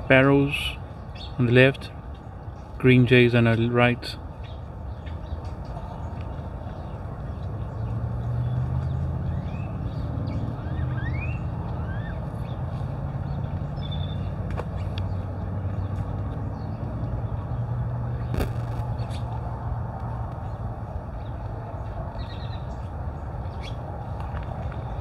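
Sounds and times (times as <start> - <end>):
vehicle engine rumble: 0.0 - 25.0
bird chirps: 8.4 - 12.6, 13.2 - 15.2, 23.5 - 23.8.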